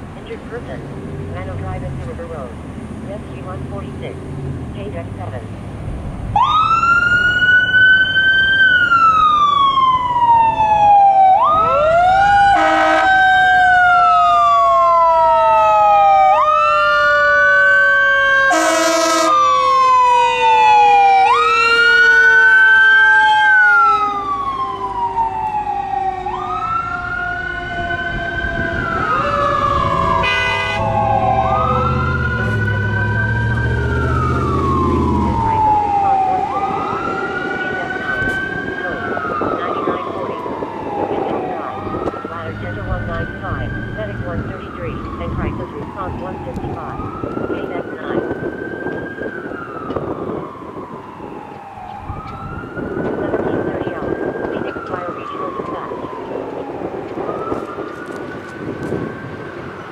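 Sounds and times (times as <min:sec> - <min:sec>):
truck engine rumble: 0:00.0 - 0:59.9
lower siren tone winding down: 0:00.3 - 0:59.9
fire engine siren wailing: 0:06.2 - 0:59.9
air horn blasts: 0:12.5 - 0:13.2, 0:18.5 - 0:19.4, 0:30.1 - 0:31.8.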